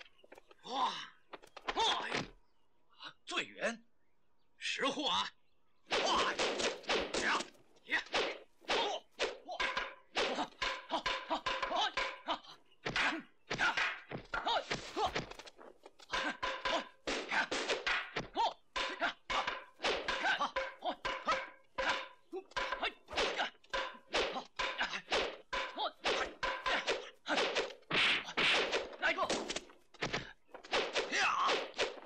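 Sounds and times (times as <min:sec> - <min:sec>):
punch thwacks: 0:05.9 - 0:10.6, 0:16.2 - 0:20.5, 0:24.1 - 0:32.0
wooden staff strikes: 0:05.9 - 0:32.0.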